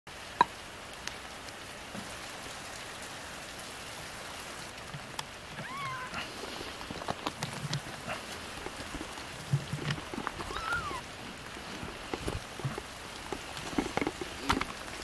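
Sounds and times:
drips and ticks: 0:00.1 - 0:15.0
steady rain hiss: 0:00.1 - 0:15.0
kitten mewing: 0:05.5 - 0:06.3, 0:10.4 - 0:11.2.

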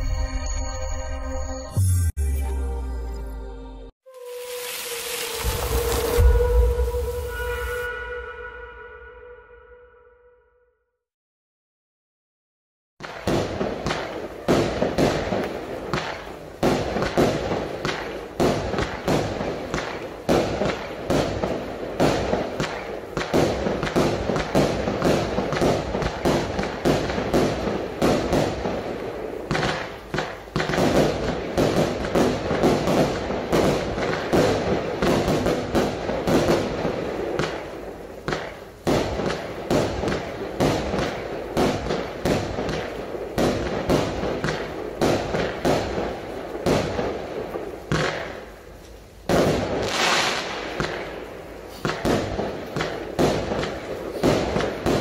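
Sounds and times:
firework launches and bursts: 0:04.1 - 0:07.4, 0:13.0 - 0:55.0
sharp firework pops: 0:13.0 - 0:55.0.

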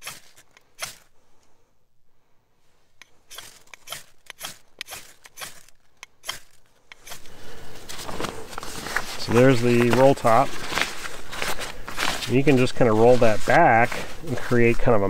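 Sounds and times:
rucksack fabric rustling: 0:02.6 - 0:15.0
sharp clicks: 0:03.0 - 0:07.3.

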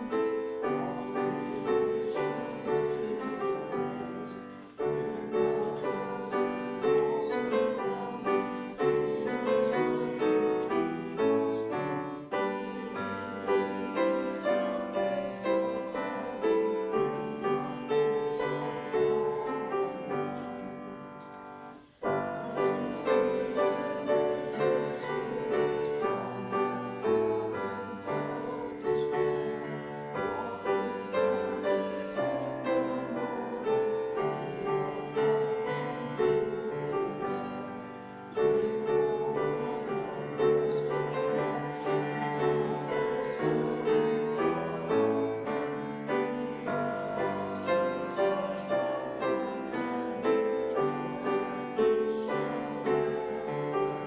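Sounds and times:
congregation singing a hymn: 0:00.0 - 0:54.0
piano playing hymn chords: 0:00.0 - 0:54.0.

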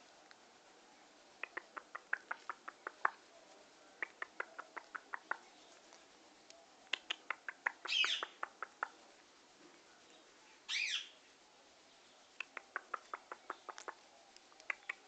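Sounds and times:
parakeet clicking: 0:01.4 - 0:03.2, 0:04.0 - 0:05.4, 0:06.9 - 0:09.0, 0:12.4 - 0:15.0
parakeet calls: 0:07.1 - 0:08.9, 0:10.7 - 0:11.2.

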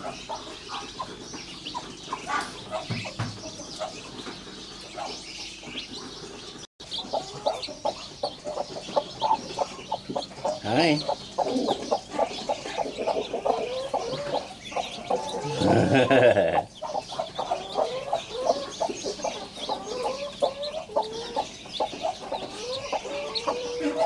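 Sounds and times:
chicks peeping: 0:00.0 - 0:24.0
hen clucking: 0:00.0 - 0:24.0
drawn-out hen call: 0:07.0 - 0:24.0.

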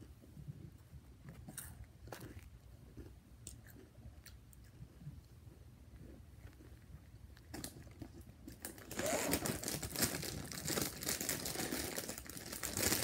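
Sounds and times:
plastic bag crinkling: 0:08.5 - 0:13.0.

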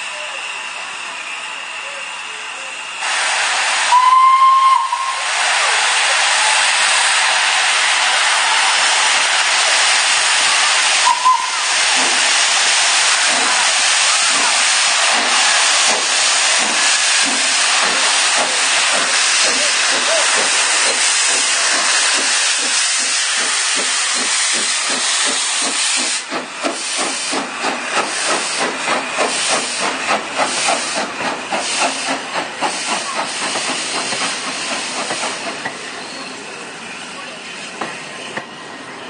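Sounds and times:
steam hissing from locomotive: 0:00.0 - 0:39.0
locomotive exhaust chuffs: 0:09.7 - 0:36.1.

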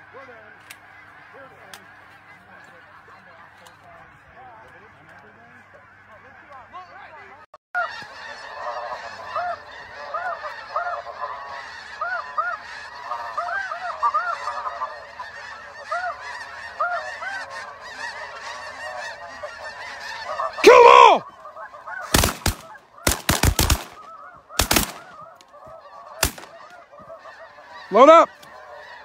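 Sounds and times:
flock of geese honking: 0:00.0 - 0:29.0
loud close goose honk: 0:07.8 - 0:29.0.

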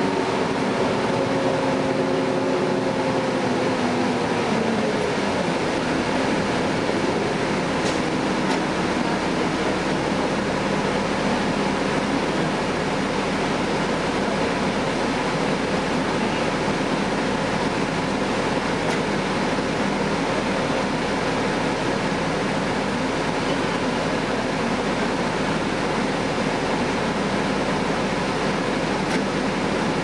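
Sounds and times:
diesel bus engine droning: 0:00.0 - 0:30.0
ventilation hiss and road noise: 0:00.0 - 0:30.0.

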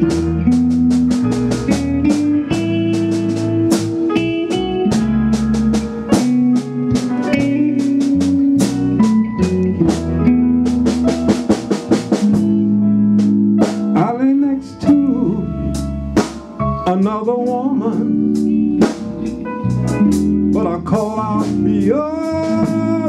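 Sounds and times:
drum beat: 0:00.0 - 0:14.2
bass line: 0:00.0 - 0:23.0
electric guitar: 0:00.0 - 0:23.0
keyboard: 0:00.0 - 0:23.0.

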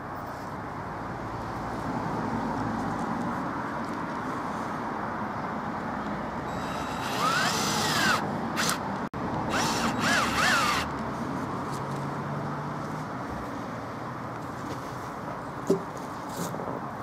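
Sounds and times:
cordless drill whining into wood: 0:06.5 - 0:08.8, 0:09.5 - 0:10.9.

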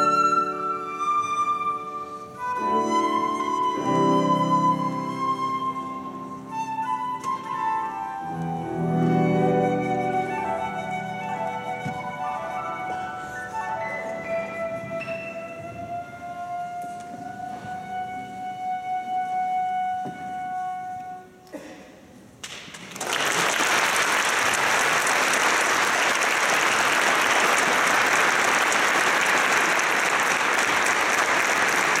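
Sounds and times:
flute holding a note: 0:00.0 - 0:21.4
audience applause: 0:22.7 - 0:32.0.

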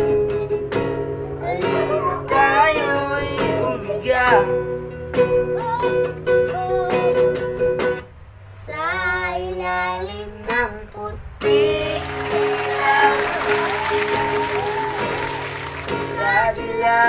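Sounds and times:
acoustic guitar strumming: 0:00.0 - 0:08.2, 0:11.4 - 0:17.0
boys singing: 0:01.4 - 0:04.6, 0:08.5 - 0:17.0.

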